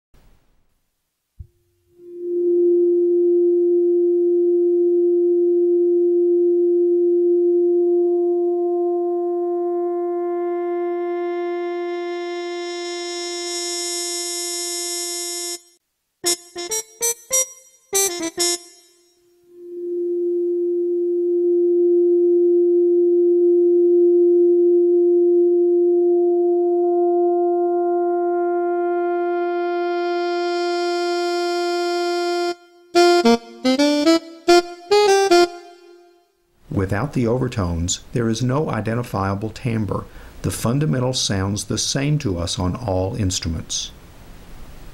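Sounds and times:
steady pure sine tone: 1.4s - 15.8s, 19.4s - 32.4s.

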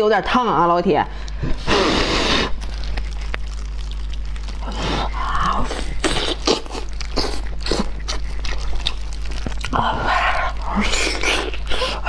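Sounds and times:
low electrical hum: 0.0s - 12.0s
wet biting and chewing: 1.2s - 12.0s
blowing on hot food: 1.4s - 3.0s.

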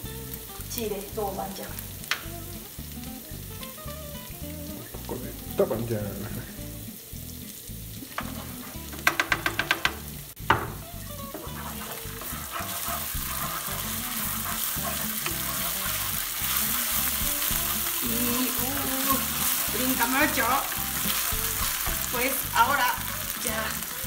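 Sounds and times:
food sizzling in oil: 0.0s - 24.0s
spatula knocking pan: 8.1s - 23.1s.

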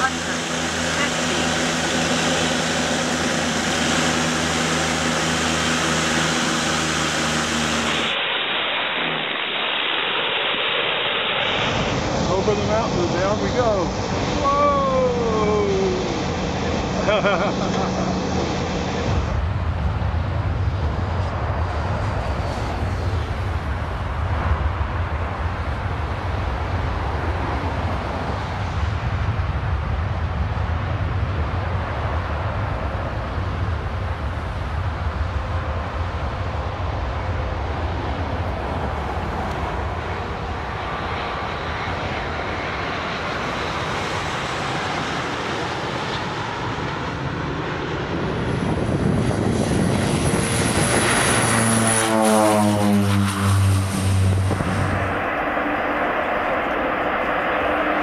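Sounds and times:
distant jet engines: 0.0s - 58.0s
turboprop plane landing: 0.0s - 58.0s
wind rumble on microphone: 11.6s - 45.6s, 46.3s - 58.0s.

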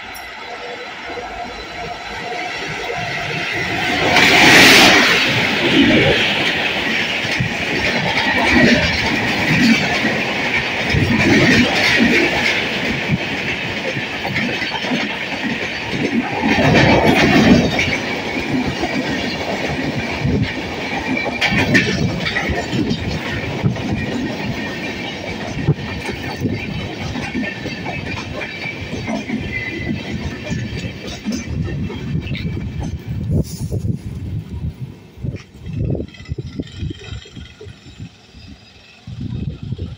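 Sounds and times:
train wheels clattering on rails: 0.0s - 39.9s.

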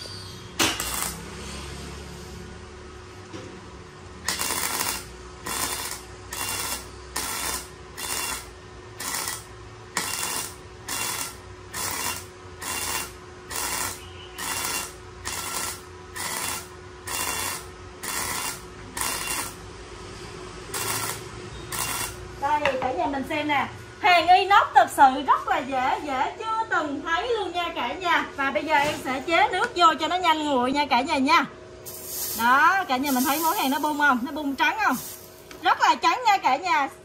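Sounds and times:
welding arc crackling: 0.6s - 1.4s, 4.2s - 19.6s, 20.7s - 22.3s, 31.9s - 35.7s.

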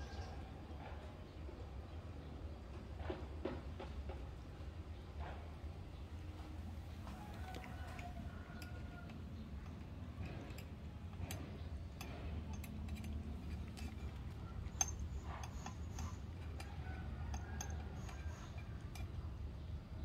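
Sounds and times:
low steady hum: 4.8s - 20.0s
cats chewing: 7.0s - 19.2s
teeth knocking metal bowls: 7.2s - 19.3s.

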